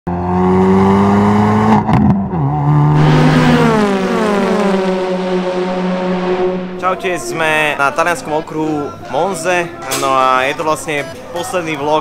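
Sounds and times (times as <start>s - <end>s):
race car engine at high revs: 0.1s - 6.8s.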